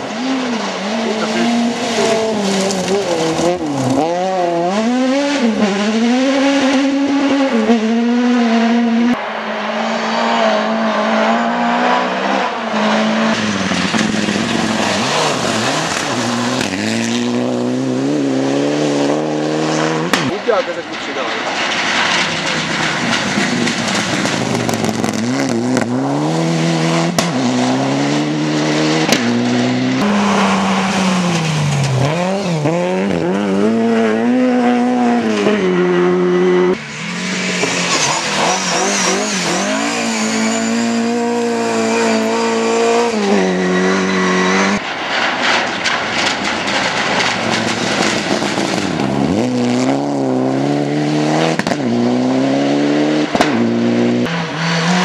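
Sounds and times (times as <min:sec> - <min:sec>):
rally car engines revving: 0:00.0 - 0:55.0
tyres scrabbling on gravel: 0:00.9 - 0:04.1, 0:13.4 - 0:17.4, 0:44.2 - 0:49.8.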